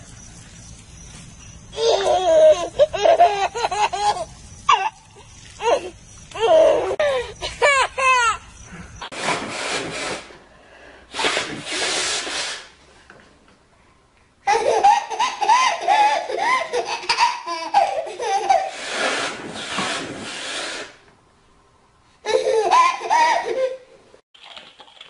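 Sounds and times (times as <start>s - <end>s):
small child laughing: 1.8s - 5.0s, 5.6s - 8.5s, 14.5s - 18.8s, 22.2s - 23.9s
rushing hisses: 11.0s - 12.8s.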